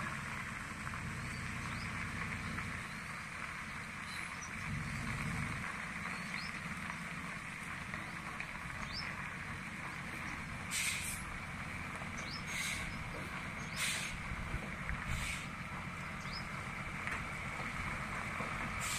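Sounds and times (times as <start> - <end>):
diesel engine rumble: 0.0 - 18.9
short hissing bursts: 10.7 - 11.2, 13.8 - 14.2, 15.2 - 15.5.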